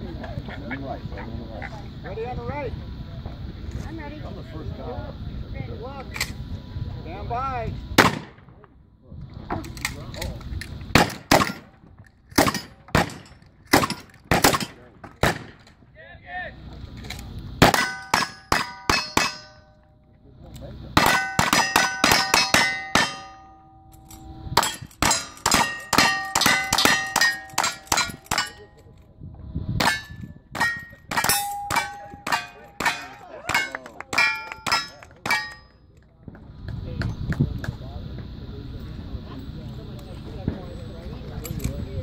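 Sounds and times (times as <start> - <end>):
metallic ringing of target hits: 12.4 - 14.8, 17.6 - 19.9, 21.0 - 28.9, 29.8 - 35.8.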